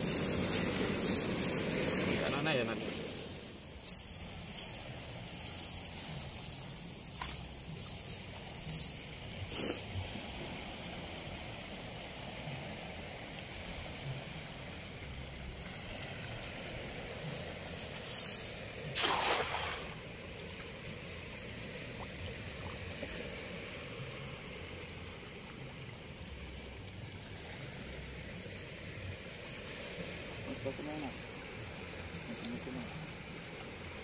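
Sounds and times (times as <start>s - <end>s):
steady outdoor hiss: 0.0s - 34.0s
net splashing into water: 18.8s - 20.2s.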